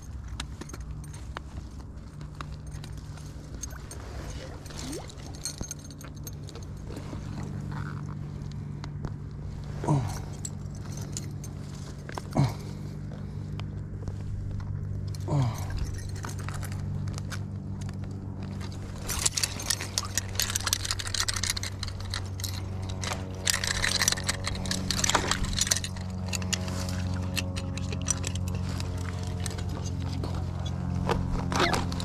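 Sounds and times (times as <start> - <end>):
metal trap chain clinking: 0.0 - 1.6, 2.4 - 8.1, 9.9 - 12.6, 15.1 - 17.0, 18.8 - 30.5
steady low hum: 0.0 - 32.0.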